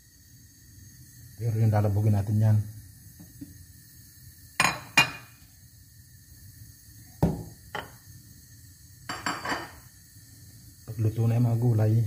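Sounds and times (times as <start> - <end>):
kitchenware clinking on pot: 9.1 - 9.8.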